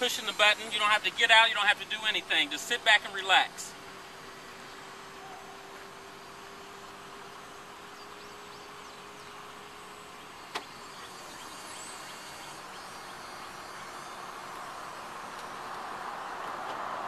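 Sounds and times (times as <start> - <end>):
electric motor whine: 9.3 - 16.3.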